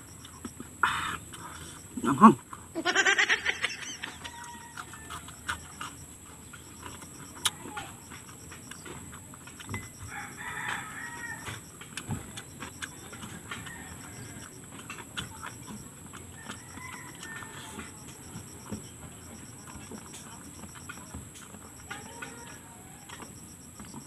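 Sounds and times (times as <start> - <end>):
chickens clucking: 0.0 - 21.0
rooster crowing: 3.0 - 5.8, 10.0 - 11.6, 13.2 - 14.5, 16.3 - 18.1.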